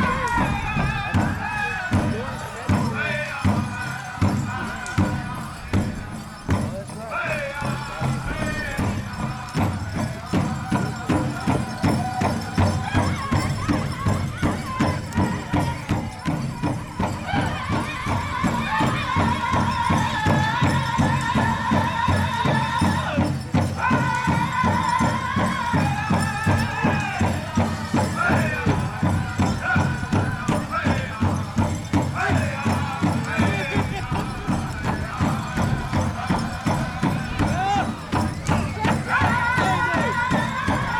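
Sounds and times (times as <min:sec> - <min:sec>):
large drum beating fast: 0:00.0 - 0:40.9
men singing in high voices: 0:00.0 - 0:40.9.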